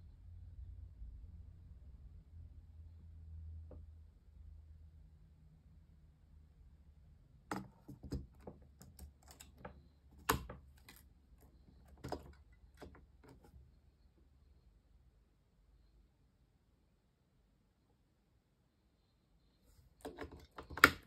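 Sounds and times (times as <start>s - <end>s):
plastic clicks and taps: 7.5s - 11.0s, 20.0s - 21.0s.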